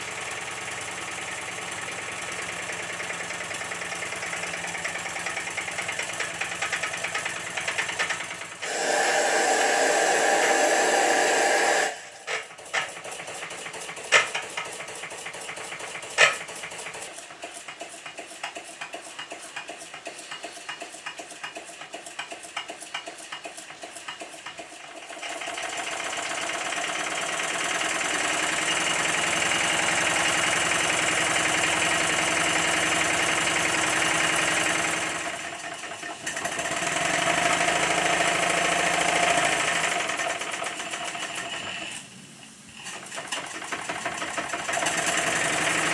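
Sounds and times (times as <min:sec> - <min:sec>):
steam engine exhaust beats: 0:00.0 - 0:45.9.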